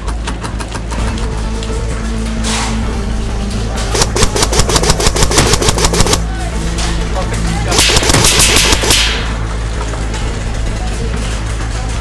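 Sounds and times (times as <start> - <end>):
airsoft rifle full-auto firing: 3.9 - 6.2, 7.7 - 9.2.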